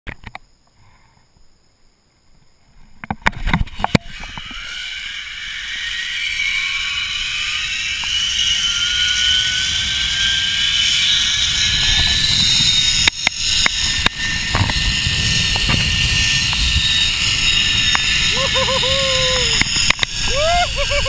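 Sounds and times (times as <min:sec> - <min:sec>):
zipline pulley whirring on cable: 0:03.4 - 0:21.0
wind rumbling on microphone: 0:08.0 - 0:21.0.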